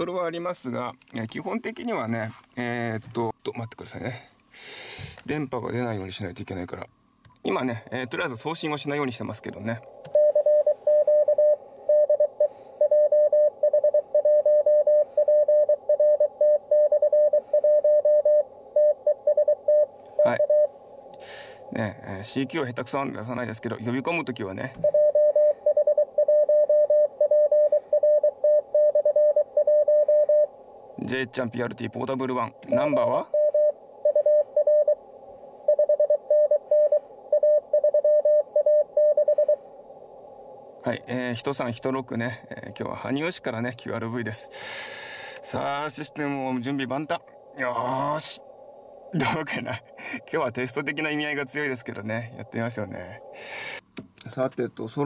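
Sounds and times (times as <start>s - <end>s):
morse code tone: 10.1s - 20.7s, 24.8s - 30.5s, 32.7s - 35.0s, 35.7s - 39.6s.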